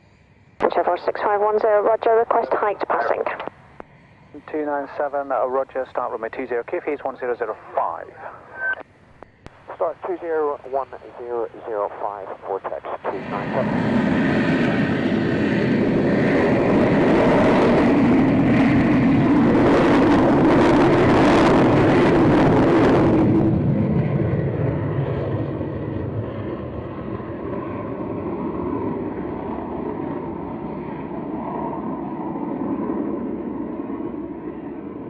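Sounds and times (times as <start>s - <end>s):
aircraft engine: 0.0s - 35.0s.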